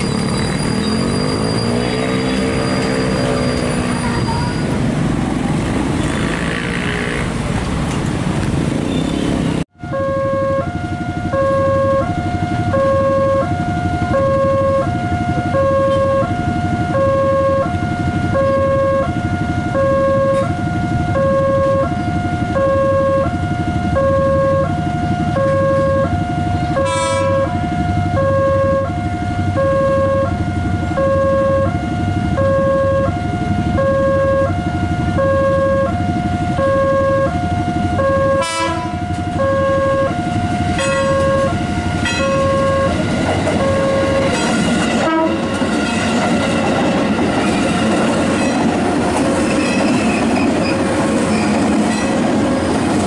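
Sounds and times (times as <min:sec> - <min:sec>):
level crossing two-tone alarm: 0:09.8 - 0:44.4.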